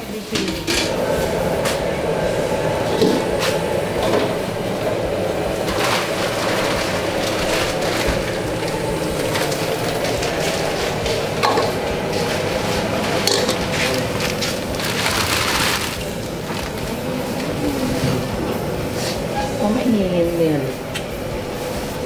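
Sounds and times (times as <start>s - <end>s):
rushing kitchen noise: 0.0s - 22.0s
pots and utensils clattering: 0.3s - 1.9s, 2.8s - 18.4s.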